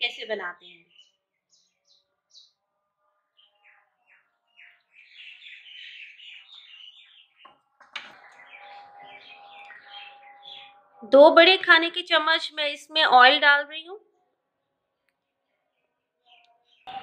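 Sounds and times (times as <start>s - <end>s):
small birds chirping: 0.0s - 2.6s, 3.4s - 11.8s, 15.0s - 17.0s.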